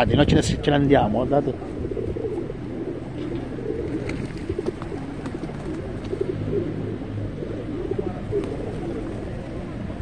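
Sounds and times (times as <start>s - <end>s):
pigeons cooing: 0.2s - 10.0s.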